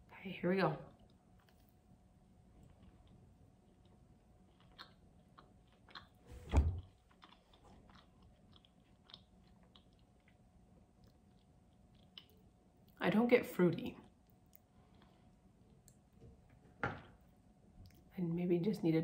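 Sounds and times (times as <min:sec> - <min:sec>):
person chewing: 0:02.5 - 0:06.2, 0:06.8 - 0:13.0, 0:14.1 - 0:16.1.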